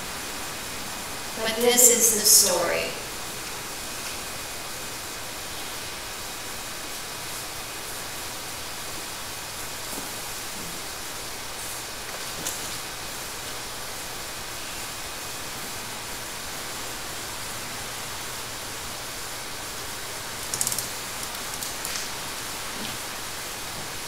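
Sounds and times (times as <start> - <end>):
steady background hiss: 0.0 - 24.0
small clicks: 20.4 - 22.1.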